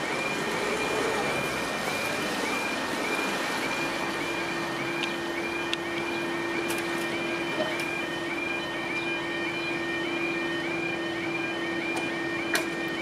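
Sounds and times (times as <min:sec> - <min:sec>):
road traffic hiss: 0:00.0 - 0:08.2
level crossing alarm warbling: 0:00.0 - 0:13.0.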